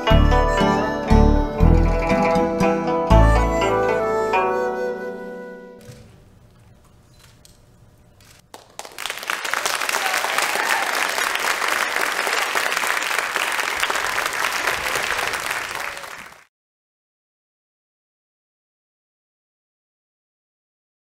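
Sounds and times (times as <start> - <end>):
audience applauding: 8.5 - 16.5.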